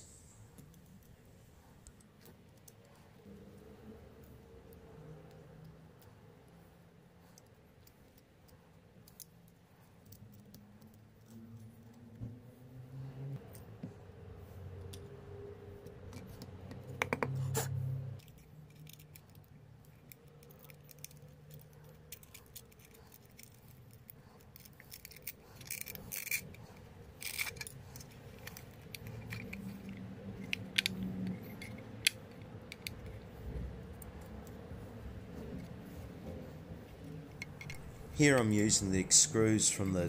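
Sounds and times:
handling clicks taps and scrapes: 0:07.3 - 0:12.4, 0:15.8 - 0:38.8.

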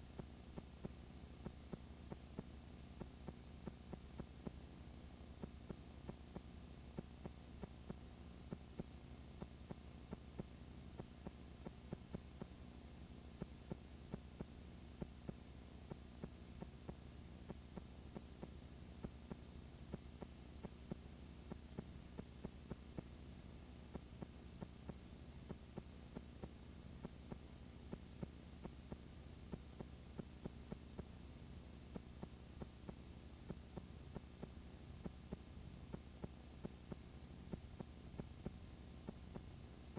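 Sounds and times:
faint ticks: 0:00.0 - 0:12.7, 0:13.4 - 0:31.2, 0:31.8 - 0:39.9
low steady hum: 0:00.0 - 0:39.9.

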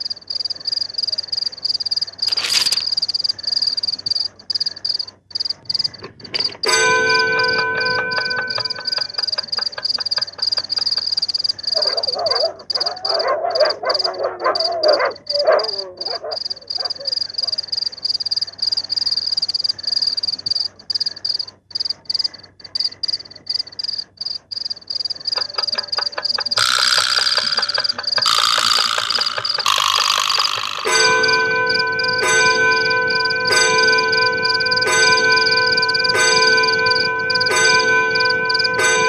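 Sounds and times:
high insect trill: 0:00.3 - 0:05.9, 0:16.0 - 0:31.9
wall clock striking: 0:06.6 - 0:11.1, 0:25.4 - 0:39.0
frogs croaking: 0:07.8 - 0:31.4.

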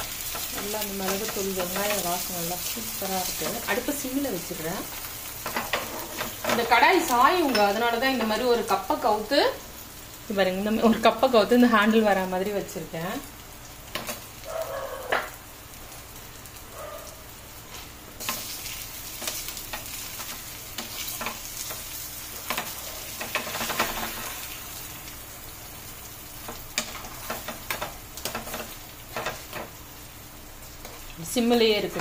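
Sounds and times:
omelette sizzling: 0:00.0 - 0:32.0.

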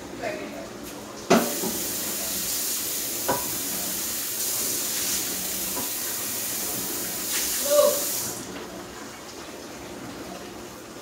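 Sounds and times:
food sizzling in a frying pan: 0:01.3 - 0:08.5.

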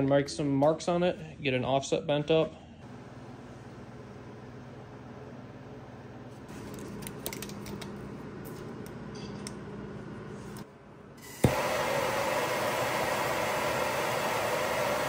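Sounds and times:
shop tool rushing hiss: 0:11.2 - 0:15.0.

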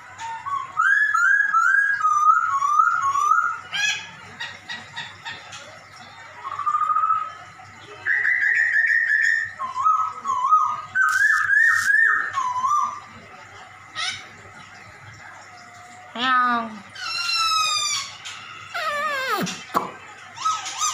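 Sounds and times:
bird singing mewing notes: 0:00.2 - 0:04.1, 0:17.0 - 0:19.8.

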